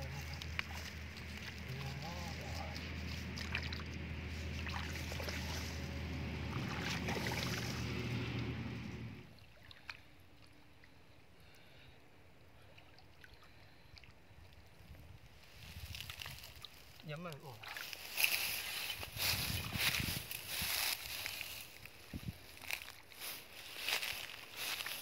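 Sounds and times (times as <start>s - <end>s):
low steady rumble: 0.0s - 9.4s
hands splashing in water: 2.8s - 5.8s, 6.5s - 7.9s
faint rustle: 17.8s - 25.0s.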